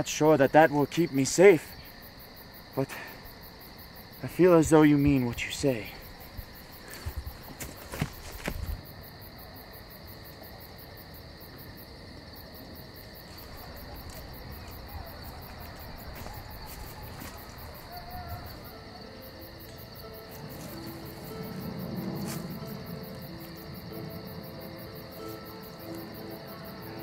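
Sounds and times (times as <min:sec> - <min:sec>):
crickets chirping: 0:00.0 - 0:27.0
faint music notes: 0:13.4 - 0:27.0.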